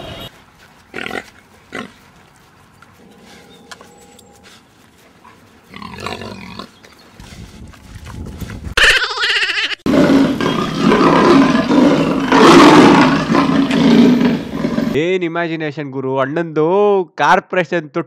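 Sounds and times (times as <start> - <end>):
pig grunting and squealing: 5.7 - 6.8, 8.8 - 15.0
big cat roar effect: 9.9 - 15.0.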